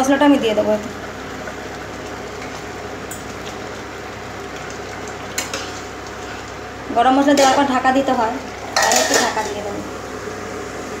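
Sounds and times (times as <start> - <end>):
curry sizzling in a pan: 0.0 - 11.0.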